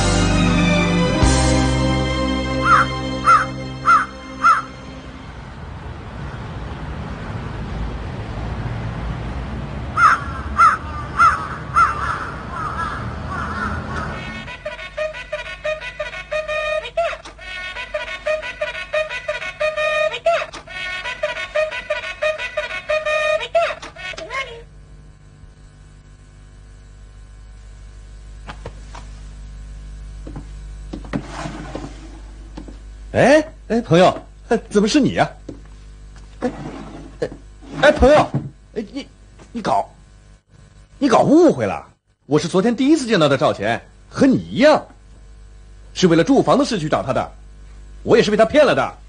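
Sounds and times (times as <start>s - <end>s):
low room hum: 0.0s - 49.0s
crows cawing: 2.5s - 4.9s, 10.0s - 14.7s.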